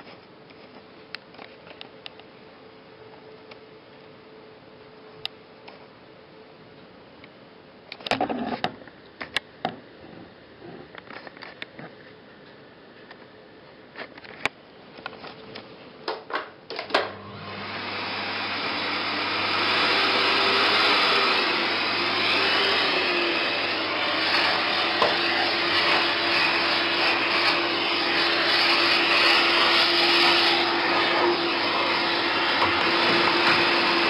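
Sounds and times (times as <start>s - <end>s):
vacuum cleaner running: 16.7s - 34.0s.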